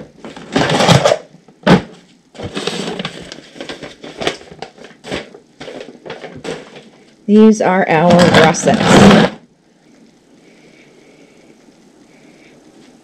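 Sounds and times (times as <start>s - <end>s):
plastic tub scraping on concrete: 2.4s - 4.4s, 7.9s - 9.4s
paper rustling: 2.4s - 7.0s.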